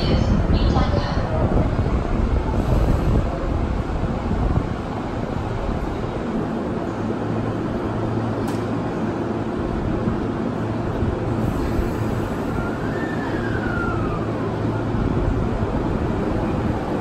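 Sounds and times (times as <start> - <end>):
electric train humming: 0.0 - 17.0.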